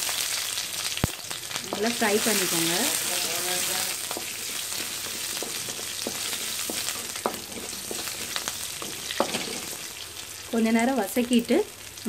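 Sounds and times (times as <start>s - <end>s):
food sizzling in hot oil: 0.0s - 12.0s
wooden spatula stirring: 1.7s - 10.0s.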